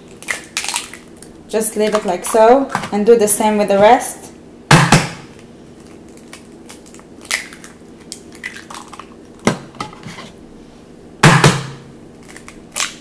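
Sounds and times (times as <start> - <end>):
eggshell crackling: 0.0 - 2.6, 5.4 - 9.4, 12.1 - 13.0.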